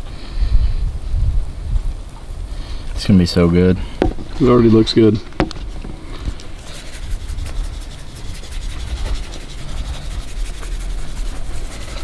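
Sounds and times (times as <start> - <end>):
wind buffeting microphone: 0.0 - 12.0
seasoning shaken from shaker: 6.6 - 12.0.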